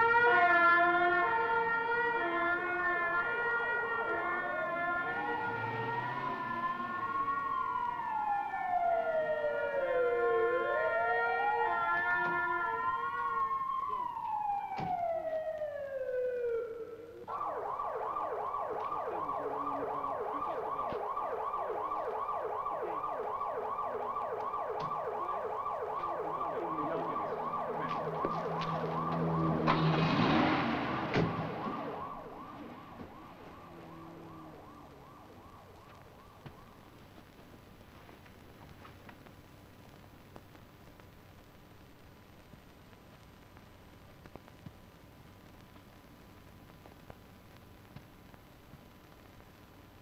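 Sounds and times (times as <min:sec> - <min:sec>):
police siren wailing and yelping: 0:00.0 - 0:36.9
loud rushing noise passing: 0:27.7 - 0:33.1.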